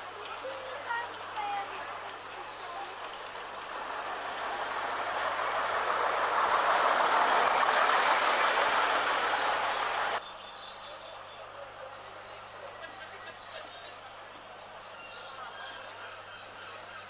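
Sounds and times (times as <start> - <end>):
bus driving past: 0.0 - 10.3.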